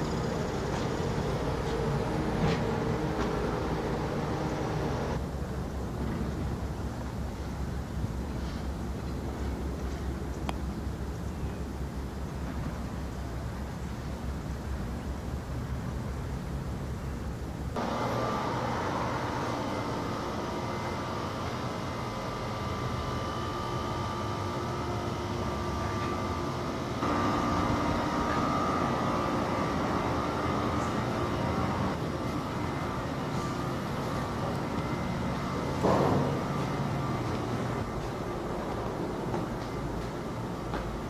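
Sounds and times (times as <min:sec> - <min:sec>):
ambient hum and hiss: 0:00.0 - 0:41.0.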